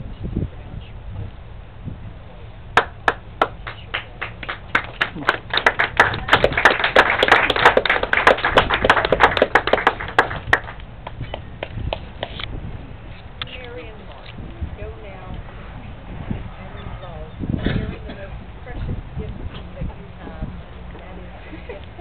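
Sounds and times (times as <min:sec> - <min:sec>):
small group applauding: 0:02.8 - 0:12.4.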